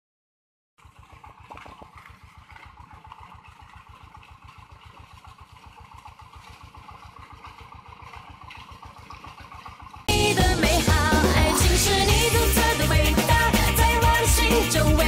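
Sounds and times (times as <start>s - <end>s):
small harvester engine running: 0.8s - 12.7s.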